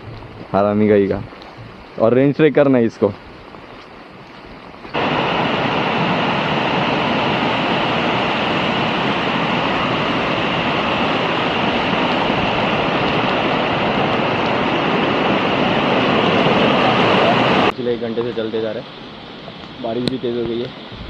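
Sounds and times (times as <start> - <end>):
water rushing: 0.0 - 21.0.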